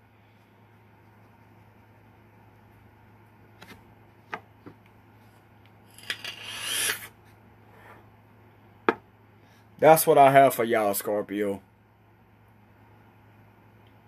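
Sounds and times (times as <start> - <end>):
steady low hum: 0.0 - 14.0
hissing drag on cigarette: 6.2 - 7.1.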